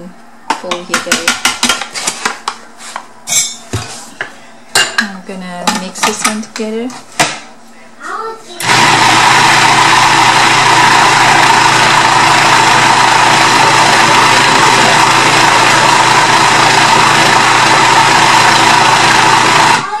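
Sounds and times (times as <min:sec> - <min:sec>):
food processor motor running: 0:08.6 - 0:19.9.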